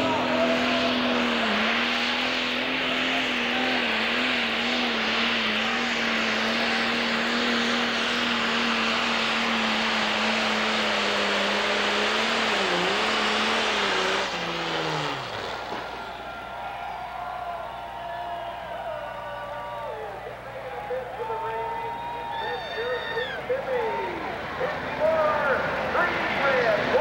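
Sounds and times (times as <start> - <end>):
diesel engine running under load: 0.0 - 27.0.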